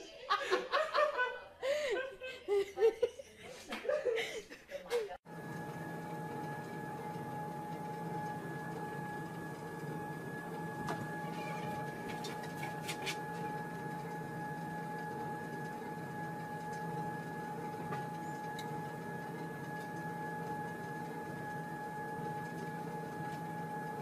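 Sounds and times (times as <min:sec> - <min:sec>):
treadmill motor whine: 0:05.3 - 0:24.0.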